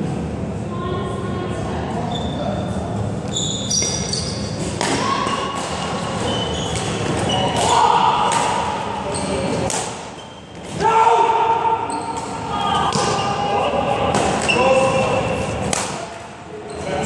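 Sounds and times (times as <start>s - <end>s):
shoes squeaking on wooden floor: 3.3s - 4.6s, 6.0s - 7.7s
racket hitting shuttlecock: 4.6s - 8.8s.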